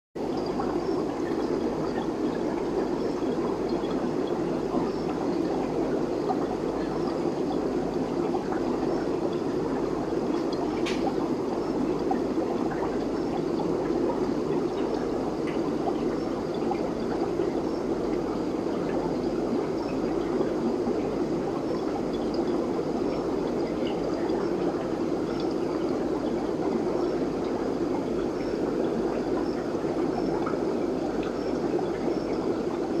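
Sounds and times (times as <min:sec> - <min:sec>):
aquarium bubbling and water flowing: 0:00.2 - 0:33.0
small click: 0:10.8 - 0:11.1.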